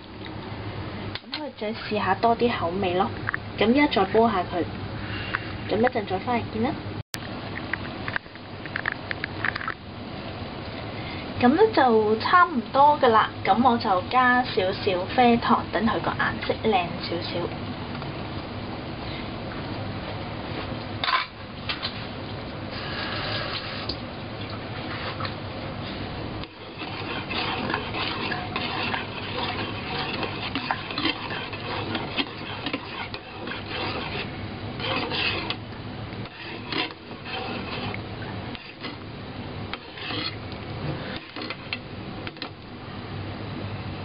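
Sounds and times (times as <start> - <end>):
metal spoon stirring in saucepan: 24.8 - 42.6
spoon scraping and clinking pan: 26.5 - 35.6, 36.3 - 39.0, 39.8 - 40.4.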